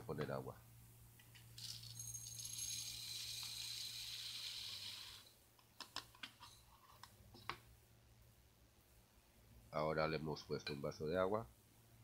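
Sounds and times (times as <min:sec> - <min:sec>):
lentils poured into glass jar: 0:01.6 - 0:05.3.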